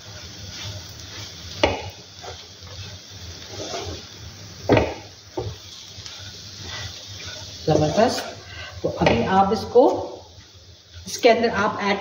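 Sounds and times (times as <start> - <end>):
spatula scraping food in pan: 0.0 - 8.5
spatula knocking on pan: 1.6 - 2.0, 4.7 - 5.6.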